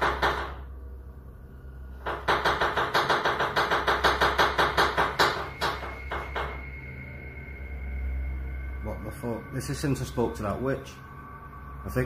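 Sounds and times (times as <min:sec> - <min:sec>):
rapid knocking on wooden table: 0:00.0 - 0:00.6, 0:02.0 - 0:06.6.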